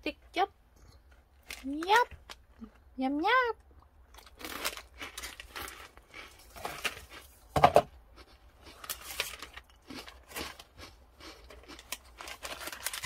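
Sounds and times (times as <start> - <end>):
foil wrappers crinkling: 1.4 - 2.5, 4.3 - 7.4, 8.7 - 10.7, 11.5 - 13.0.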